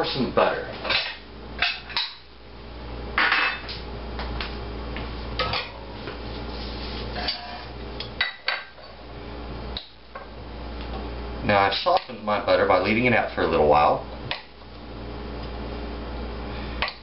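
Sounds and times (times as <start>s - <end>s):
steady low hum: 0.0s - 17.0s
dishes and utensils clinking: 7.2s - 9.0s.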